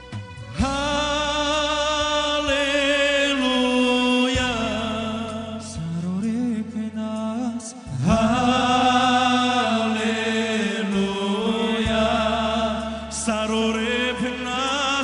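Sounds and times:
low accompaniment notes: 0:00.0 - 0:15.0
men's vocal group singing in harmony: 0:07.6 - 0:15.0.

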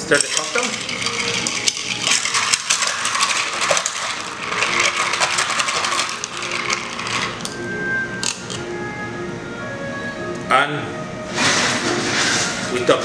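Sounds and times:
ice and spoon clinking in glass: 0:00.0 - 0:07.6.

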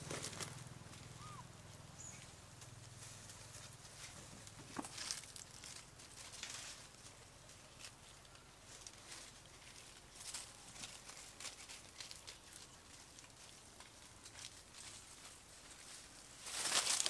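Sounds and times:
dry leaves rustling: 0:00.0 - 0:17.0.

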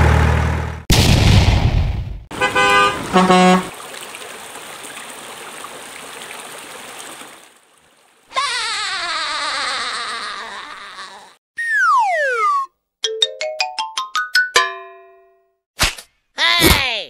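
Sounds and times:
short horn toots: 0:02.4 - 0:03.7
stream running over rocks: 0:03.7 - 0:08.3.

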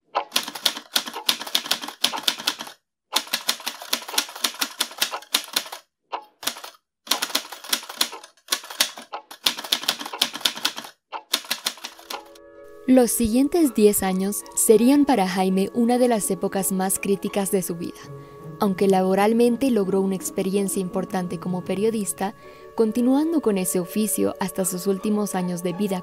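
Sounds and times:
manual typewriter typing: 0:00.2 - 0:05.8, 0:06.4 - 0:12.3.

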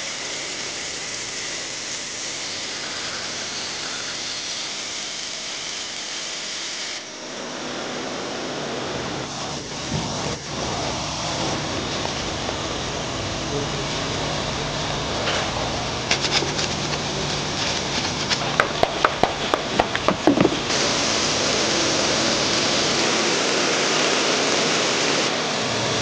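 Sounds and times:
brushes scrubbing: 0:16.0 - 0:20.9
pressure washer spray hissing: 0:16.0 - 0:25.3
sharp clicks and taps: 0:18.3 - 0:20.7.

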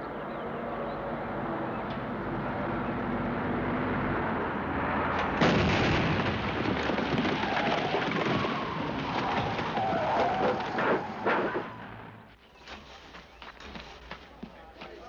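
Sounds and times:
explosion: 0:05.4 - 0:09.1
rock and debris sliding: 0:05.5 - 0:11.7.

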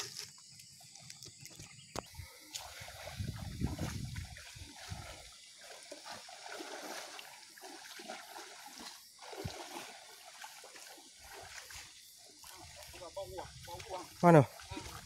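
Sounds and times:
wading through muddy water: 0:00.0 - 0:15.0.

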